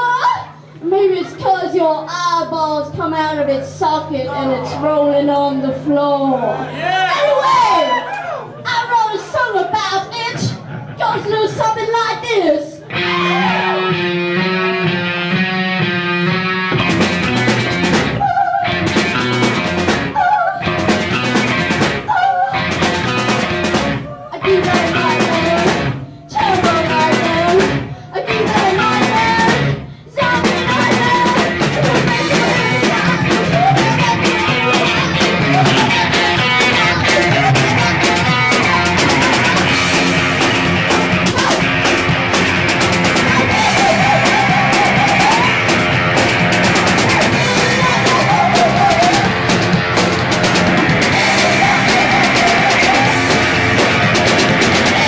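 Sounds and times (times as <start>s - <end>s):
punk rock band playing: 12.8s - 55.0s.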